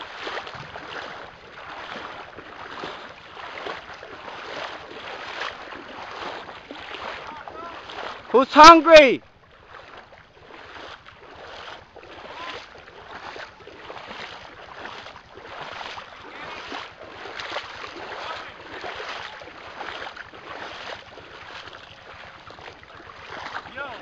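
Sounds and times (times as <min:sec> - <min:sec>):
footsteps splashing through water: 0:00.0 - 0:24.0.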